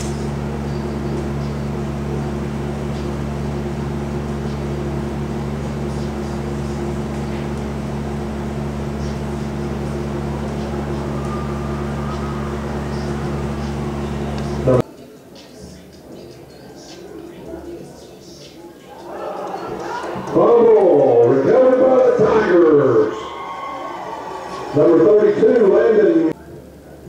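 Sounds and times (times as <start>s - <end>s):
steady low hum: 0.0s - 14.8s.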